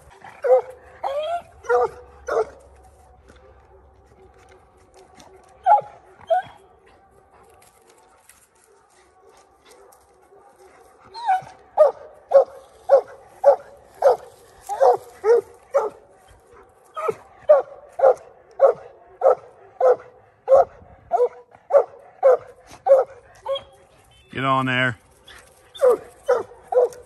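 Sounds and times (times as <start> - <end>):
dog barking: 0.4 - 2.6, 5.6 - 6.7, 8.7 - 24.1, 25.3 - 27.0.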